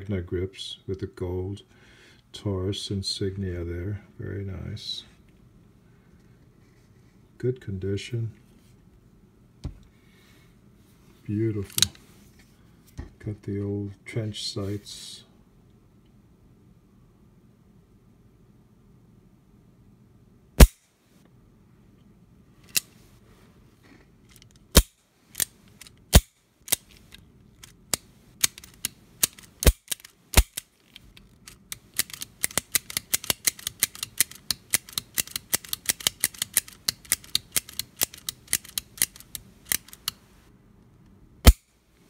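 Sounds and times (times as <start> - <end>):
revolver hammer and cylinder clicks: 31.5 - 40.2.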